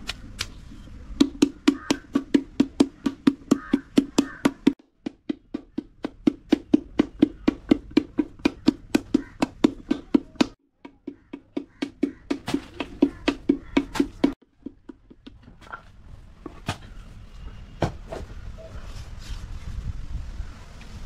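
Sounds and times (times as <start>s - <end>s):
wooden paddle thudding on clay pot: 1.2s - 15.4s.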